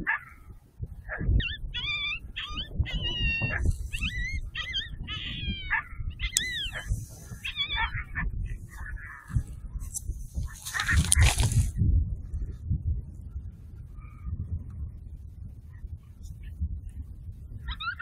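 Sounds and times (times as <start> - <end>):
low wind rumble: 0.0 - 18.0
coyote yips and whining cries: 1.1 - 9.4, 17.6 - 18.0.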